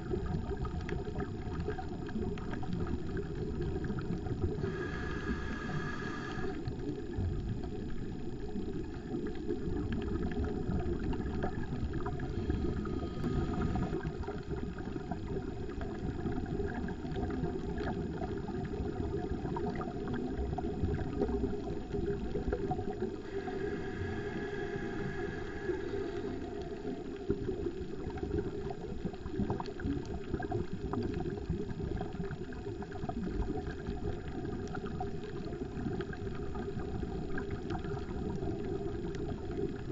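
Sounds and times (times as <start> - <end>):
faint high hiss-like tone: 3.9 - 7.2, 12.0 - 15.4, 22.2 - 28.8
underwater regulator breathing bubbles: 4.5 - 6.8, 11.0 - 14.9, 22.9 - 27.0.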